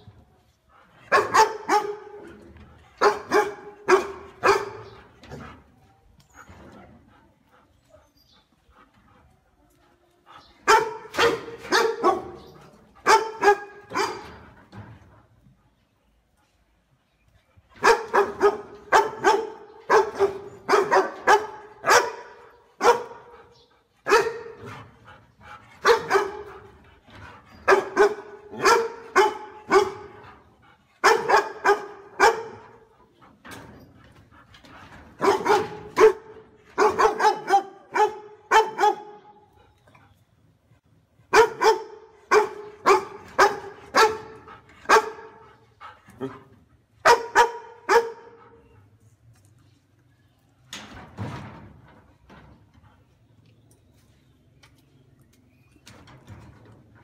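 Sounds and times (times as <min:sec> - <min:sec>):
large dog barking loudly: 0:01.1 - 0:02.3, 0:03.0 - 0:05.0, 0:10.6 - 0:14.4, 0:17.8 - 0:23.4, 0:24.0 - 0:24.7, 0:25.8 - 0:26.7, 0:27.6 - 0:30.2, 0:31.0 - 0:32.8, 0:35.2 - 0:39.3, 0:41.3 - 0:45.5, 0:46.2 - 0:48.4.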